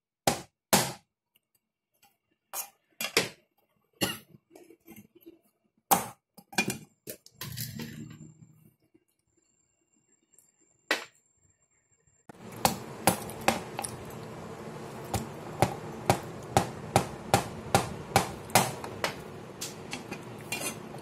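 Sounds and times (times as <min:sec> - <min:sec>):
steady background noise: 0:12.3 - 0:21.0
knife chopping on cutting board: 0:12.6 - 0:14.0, 0:15.1 - 0:19.8.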